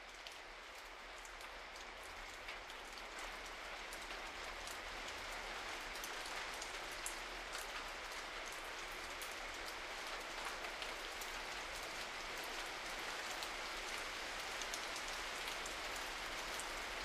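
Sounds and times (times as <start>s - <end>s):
steady rain: 0.0s - 17.0s
raindrop ticks: 0.1s - 12.6s.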